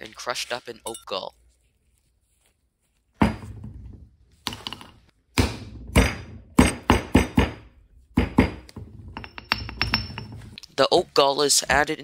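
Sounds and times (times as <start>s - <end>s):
pestle pounding in mortar: 5.4s - 9.3s.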